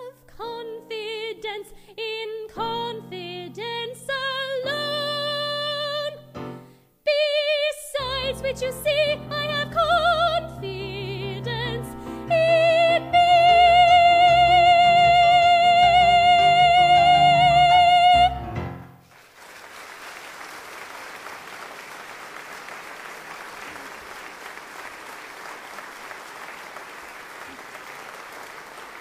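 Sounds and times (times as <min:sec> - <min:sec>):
woman singing with vibrato: 0:00.0 - 0:06.3, 0:07.1 - 0:18.5
audience applauding: 0:19.0 - 0:29.0.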